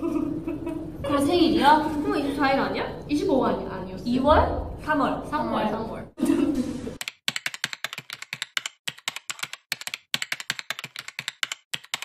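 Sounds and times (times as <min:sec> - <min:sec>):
keyboard typing: 0:07.0 - 0:12.0.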